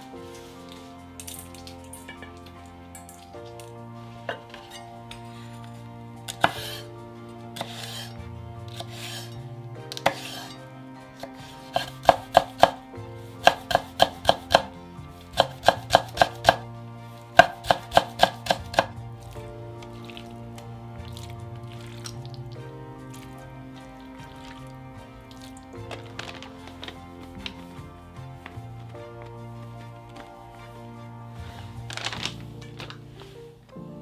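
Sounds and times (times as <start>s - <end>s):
soft background music: 0.0s - 34.0s
knife chopping on cutting board: 6.4s - 6.8s, 7.6s - 8.0s, 10.0s - 10.5s, 11.2s - 12.8s, 13.4s - 14.7s, 15.4s - 16.6s, 17.4s - 19.0s.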